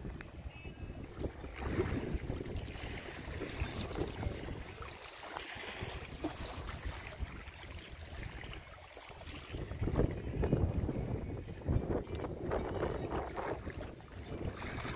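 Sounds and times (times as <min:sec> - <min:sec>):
wind gusting against microphone: 0:00.0 - 0:04.9, 0:09.4 - 0:14.9.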